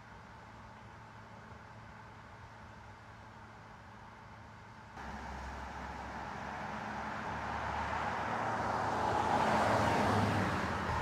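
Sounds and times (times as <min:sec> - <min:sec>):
car driving by: 0:05.0 - 0:11.0.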